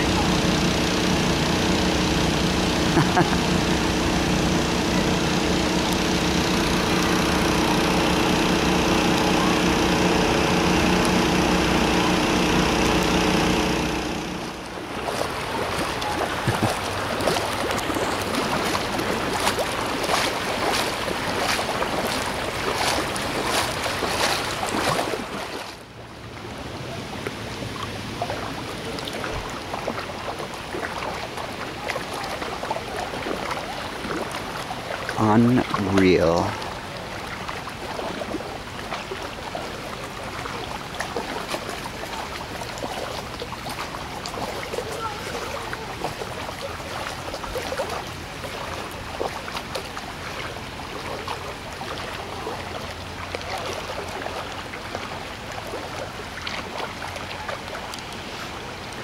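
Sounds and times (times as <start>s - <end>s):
engine humming: 0.0s - 30.2s
feet wading through water: 0.0s - 59.0s
floodwater rushing: 0.0s - 59.0s.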